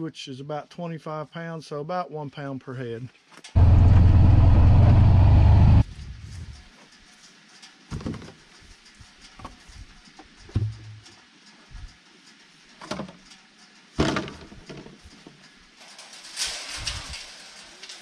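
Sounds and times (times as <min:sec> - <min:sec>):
rubber bucket thumps and knocks: 0:14.0 - 0:14.9.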